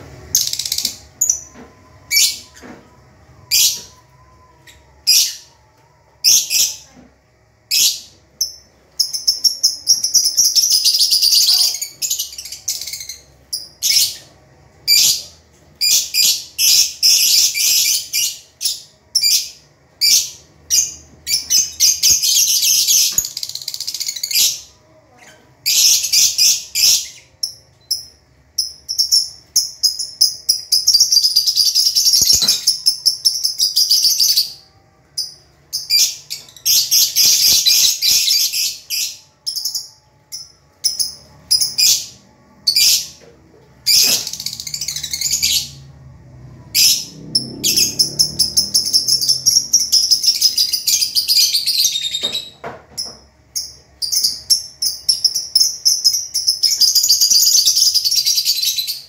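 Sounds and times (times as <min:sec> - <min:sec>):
lovebirds chattering shrill chirps: 0:43.8 - 0:45.8, 0:46.8 - 0:59.0.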